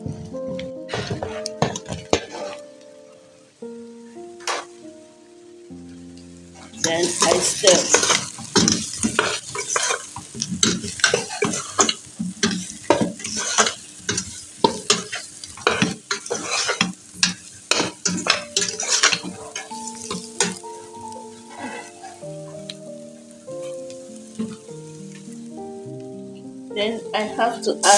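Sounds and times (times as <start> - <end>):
background music: 0.0 - 9.4, 17.7 - 27.9
food frying in a pot: 0.0 - 27.9
spoon scraping a pot: 6.8 - 20.6.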